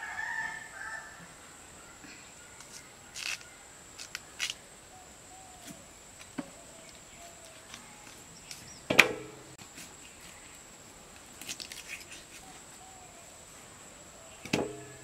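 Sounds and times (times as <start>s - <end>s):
loud clang on metal platter: 14.5s - 15.0s.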